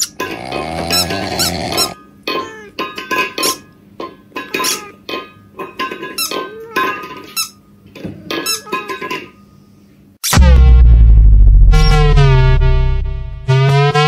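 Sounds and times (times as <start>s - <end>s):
squeaky cat-like vocal sounds: 0.0s - 2.8s, 4.5s - 5.0s, 8.3s - 9.0s.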